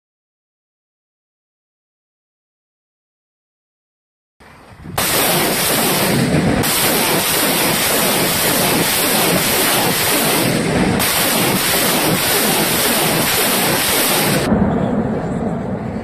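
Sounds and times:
rockets launching roar: 4.8s - 16.0s.

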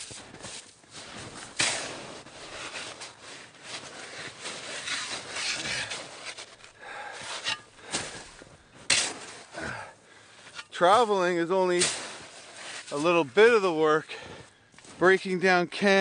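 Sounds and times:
snow shovel crunching and scraping: 0.0s - 16.0s.

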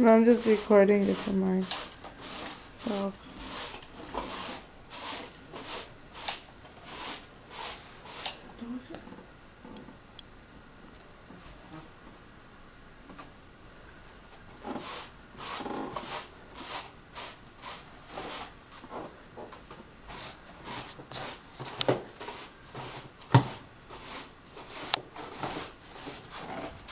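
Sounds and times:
rustling and handling noises: 14.3s - 26.9s.

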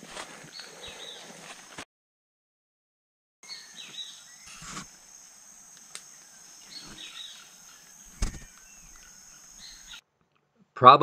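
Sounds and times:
high insect chorus: 3.4s - 10.0s
bird chirps: 6.0s - 10.0s.

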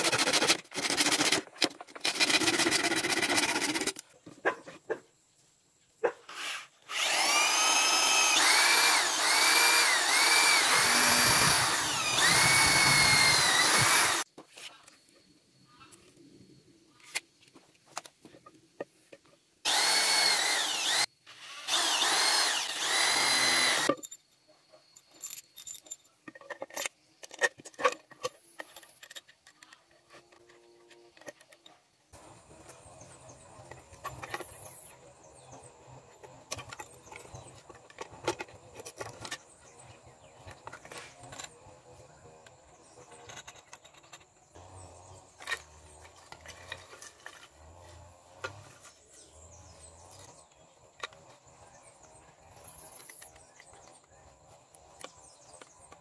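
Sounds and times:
electric drill boring bamboo: 0.0s - 4.0s, 6.9s - 14.3s, 19.6s - 24.0s.

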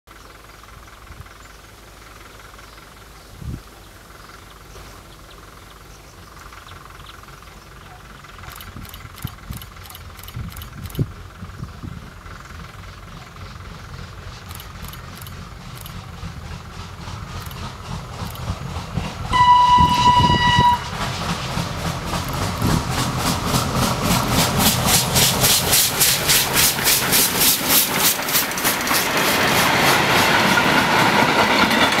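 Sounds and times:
steam locomotive chuffing: 0.1s - 32.0s
train wheels clattering on rails: 6.4s - 32.0s
steam whistle blast: 19.3s - 21.0s.

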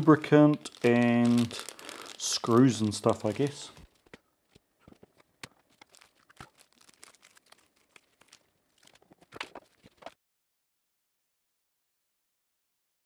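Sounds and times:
plastic clicks and rustles: 0.4s - 10.2s.

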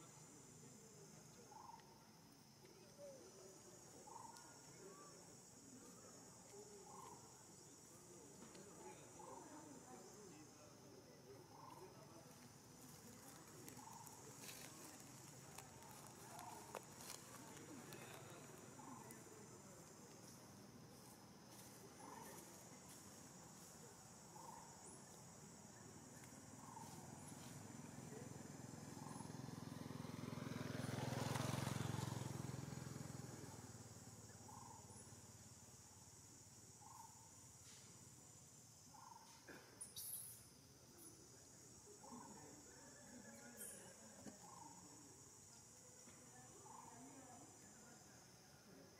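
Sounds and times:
insect drone: 0.0s - 48.9s
vehicle engine passing by: 27.7s - 34.7s.

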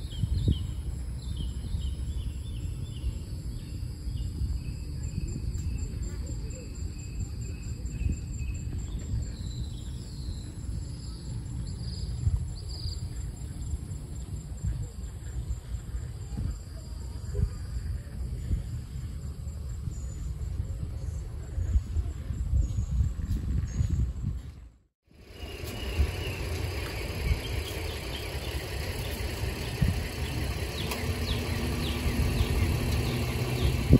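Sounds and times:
insect drone: 0.0s - 21.5s, 25.1s - 33.9s
wind rumble on microphone: 0.0s - 33.9s
vehicle engine hum: 25.1s - 33.9s.

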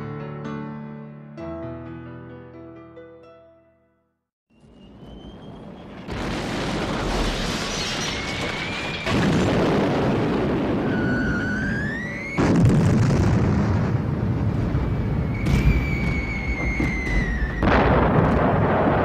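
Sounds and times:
whistling tone rising in pitch: 4.5s - 6.0s, 10.8s - 12.4s, 14.8s - 17.7s
rumbling explosions: 5.3s - 19.0s.

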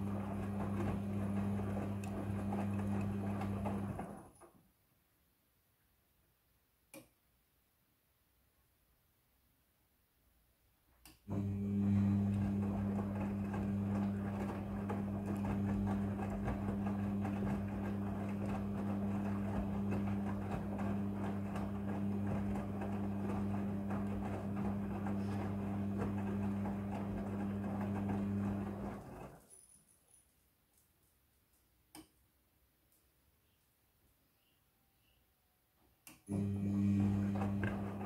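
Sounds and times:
laundry tumbling and sloshing: 0.0s - 4.3s, 11.4s - 29.4s, 36.3s - 38.0s
washing machine motor humming: 0.0s - 4.4s, 11.3s - 29.4s, 36.1s - 38.0s.

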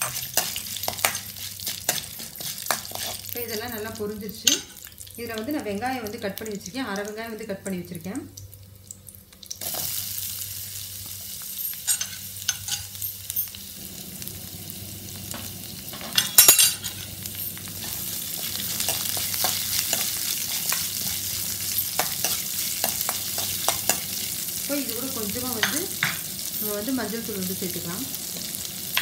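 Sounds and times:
utensil scraping against pan: 0.0s - 3.4s, 17.8s - 24.3s
onion frying in hot oil: 0.0s - 29.0s.

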